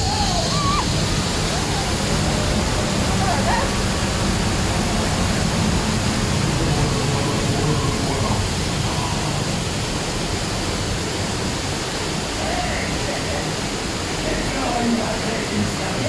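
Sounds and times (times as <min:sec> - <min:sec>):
water cascading: 0:00.0 - 0:16.0.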